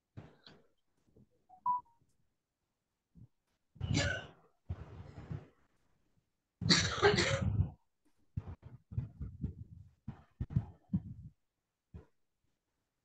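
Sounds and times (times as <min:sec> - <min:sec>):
person coughing: 0:06.7 - 0:07.7.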